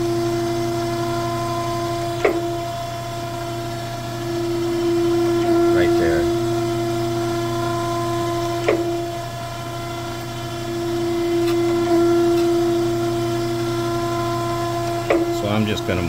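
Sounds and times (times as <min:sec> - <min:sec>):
surface grinder humming: 0:00.0 - 0:16.0
click: 0:02.2 - 0:02.4, 0:08.4 - 0:08.9
grinding wheel touching steel: 0:07.5 - 0:09.2, 0:11.0 - 0:15.7.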